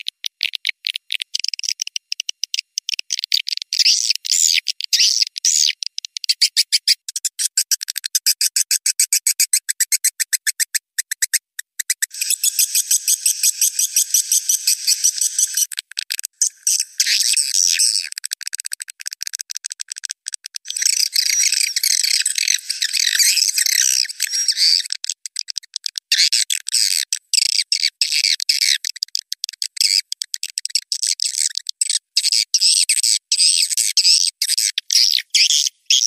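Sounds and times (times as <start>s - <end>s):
swiftlet clicks and chirps: 0.0s - 36.0s.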